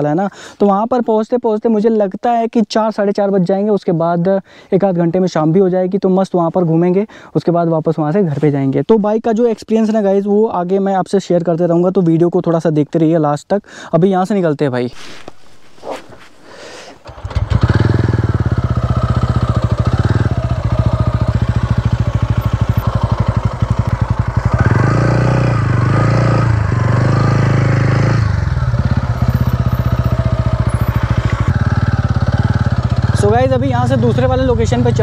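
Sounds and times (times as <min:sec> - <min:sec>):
motorcycle engine riding off: 0:17.0 - 0:35.0.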